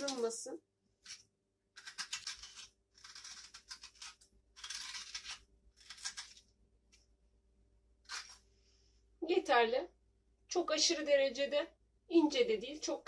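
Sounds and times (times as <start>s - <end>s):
spoon scraping potato: 1.0s - 6.5s, 8.0s - 8.5s.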